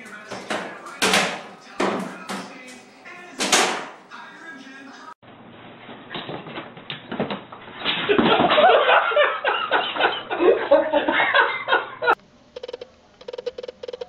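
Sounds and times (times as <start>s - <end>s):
man laughing loudly: 8.0s - 12.2s.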